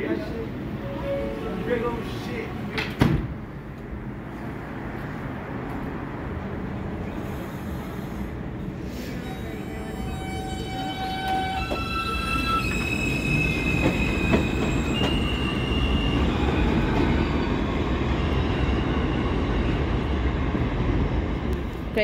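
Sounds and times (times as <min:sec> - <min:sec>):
subway train propulsion whine: 0:00.0 - 0:22.0
steel wheels rumbling on rails: 0:08.2 - 0:22.0.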